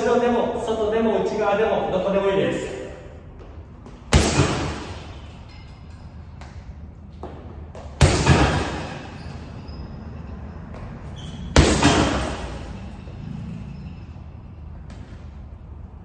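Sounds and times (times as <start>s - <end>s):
punches thudding on heavy bag: 3.9s - 5.2s, 7.7s - 9.3s, 11.5s - 12.7s.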